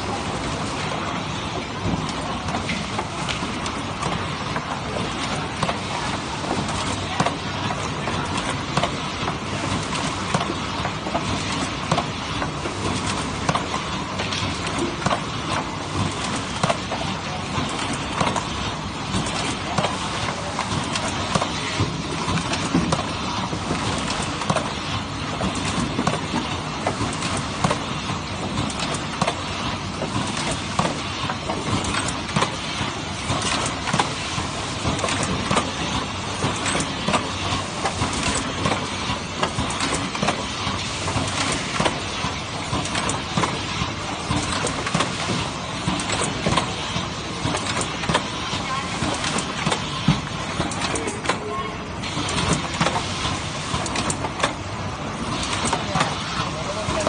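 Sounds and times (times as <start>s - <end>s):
machine mechanical clatter: 0.0s - 57.0s
sharp clicks and knocks: 34.8s - 46.8s, 52.2s - 54.6s.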